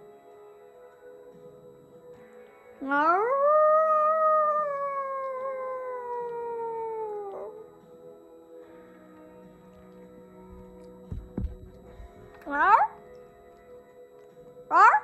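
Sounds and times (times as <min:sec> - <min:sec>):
woman imitating wolf howl: 0:02.8 - 0:07.7, 0:12.4 - 0:13.0, 0:14.7 - 0:15.0.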